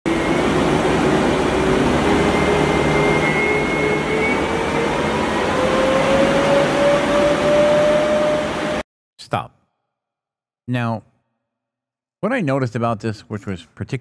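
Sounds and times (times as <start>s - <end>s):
ducted fans rushing air: 0.1s - 8.8s
electric motor whine: 0.1s - 8.8s.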